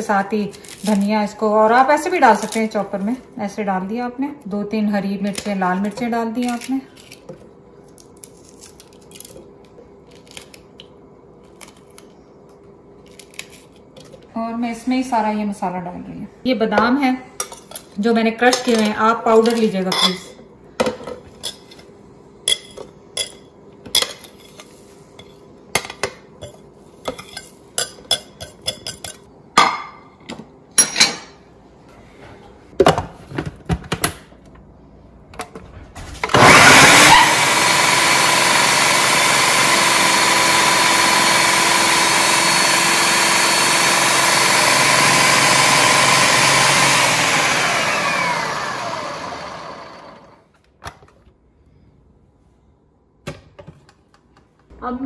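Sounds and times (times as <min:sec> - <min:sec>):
food processor whining: 0:36.2 - 0:50.5.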